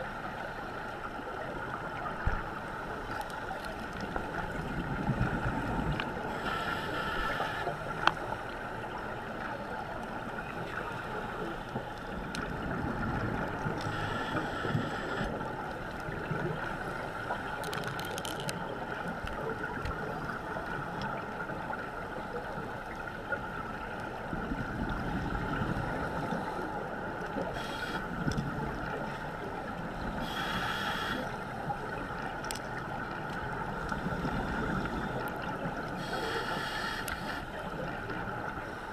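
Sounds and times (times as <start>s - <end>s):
regulator breathing underwater: 6.3s - 7.8s, 13.8s - 15.3s, 27.5s - 28.2s, 30.1s - 31.5s, 36.0s - 37.5s.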